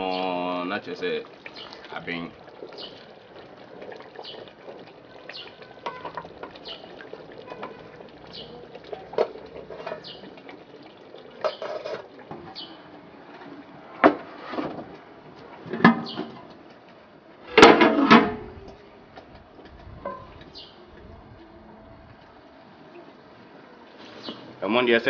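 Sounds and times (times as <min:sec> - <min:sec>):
wooden spoon stirring stew: 0:01.2 - 0:12.6
metal pot lids clanking: 0:05.8 - 0:10.2, 0:11.4 - 0:12.1.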